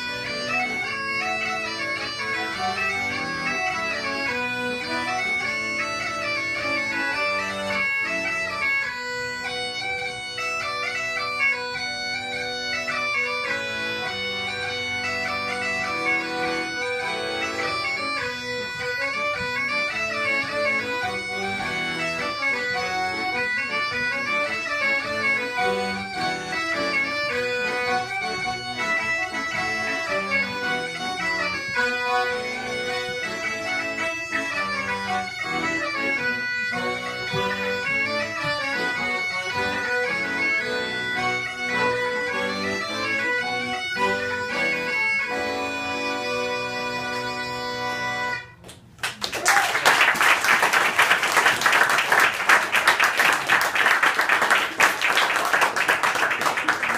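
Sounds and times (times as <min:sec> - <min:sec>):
bagpipes playing folk tune: 0:00.0 - 0:48.6
accordion: 0:00.0 - 0:49.2, 0:49.9 - 0:56.9
audience applause: 0:49.0 - 0:56.9.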